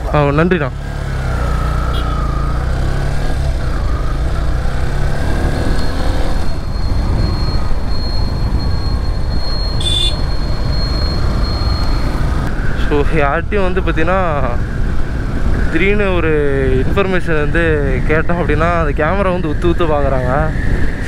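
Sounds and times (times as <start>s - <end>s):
wind rumble on microphone: 5.3s - 12.8s.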